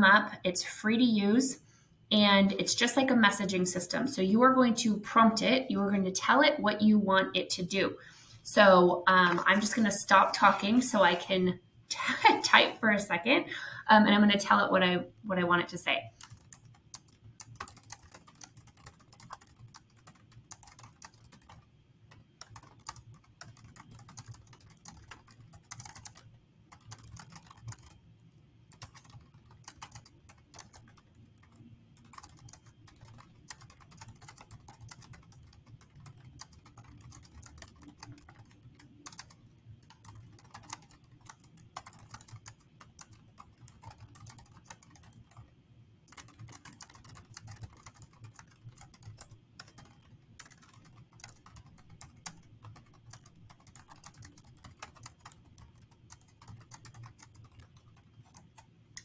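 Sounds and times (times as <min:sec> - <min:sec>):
computer keyboard typing: 0:08.5 - 0:11.3, 0:16.1 - 0:28.1, 0:28.7 - 0:59.0.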